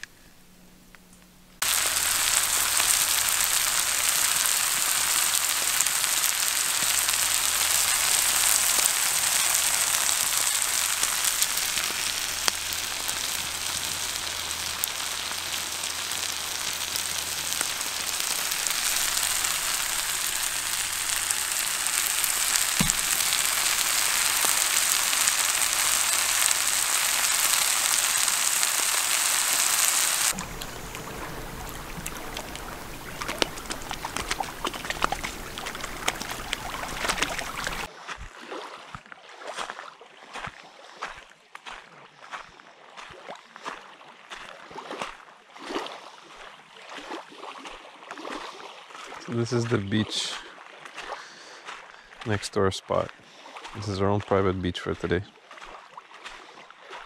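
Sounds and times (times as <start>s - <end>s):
food sizzling in pan: 1.6s - 37.9s.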